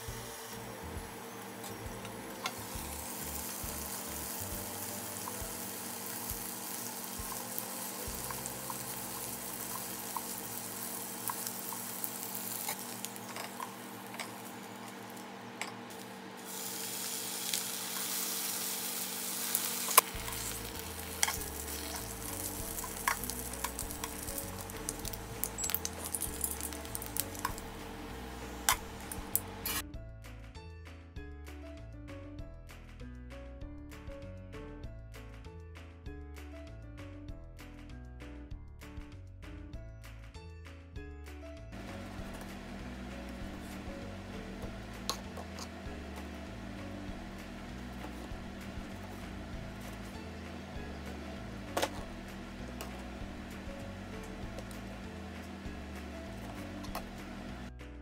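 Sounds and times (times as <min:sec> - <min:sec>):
food sizzling in pan: 0:00.0 - 0:29.8, 0:41.8 - 0:57.6
metal tongs clicking on pan: 0:11.2 - 0:15.0, 0:21.1 - 0:22.1, 0:22.7 - 0:24.3, 0:24.9 - 0:27.6.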